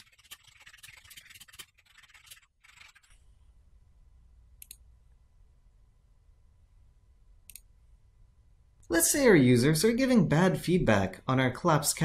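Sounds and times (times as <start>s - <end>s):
computer mouse clicks: 4.6s - 4.8s, 7.4s - 7.7s.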